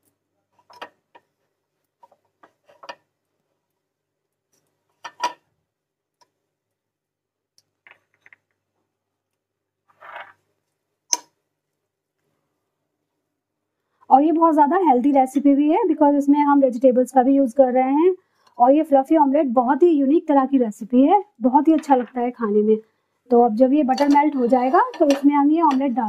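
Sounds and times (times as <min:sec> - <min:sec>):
spatula scraping a frying pan: 0:23.8 - 0:26.0.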